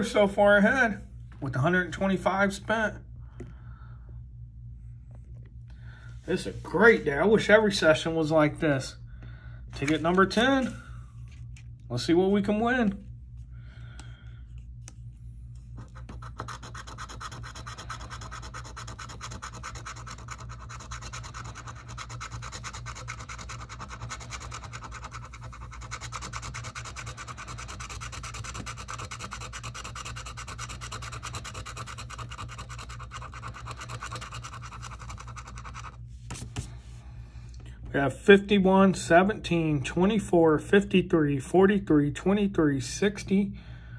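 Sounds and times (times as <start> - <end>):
coin scratching a ticket: 15.8 - 36.0.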